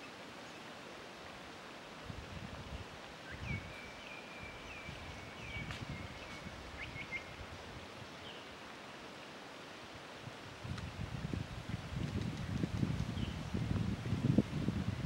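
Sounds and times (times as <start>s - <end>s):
wind on microphone: 2.0s - 8.3s, 10.2s - 15.0s.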